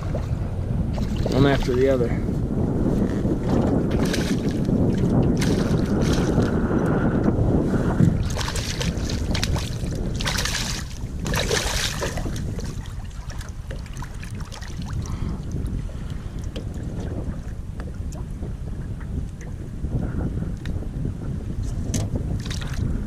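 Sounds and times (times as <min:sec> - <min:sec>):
wind rumbling on microphone: 0:00.0 - 0:23.0
fish thrashing and splashing: 0:03.5 - 0:06.6, 0:08.1 - 0:15.2.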